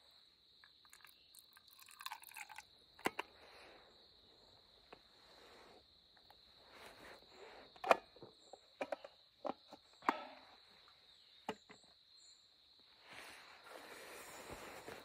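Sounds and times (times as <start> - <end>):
insects chirring: 0.0 - 15.0
clothing rustling: 13.0 - 15.0.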